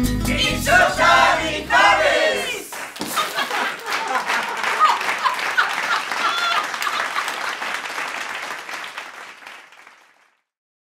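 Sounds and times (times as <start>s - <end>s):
people cheering: 0.4s - 10.2s
applause: 2.4s - 10.6s.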